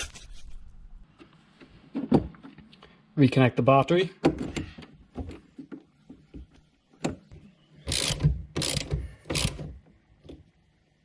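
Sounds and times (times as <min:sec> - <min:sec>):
ratchet ratcheting: 0:07.9 - 0:09.7.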